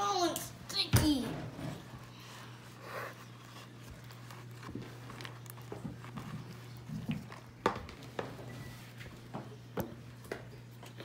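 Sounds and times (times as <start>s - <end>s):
spoon stirring slime: 2.0s - 9.1s.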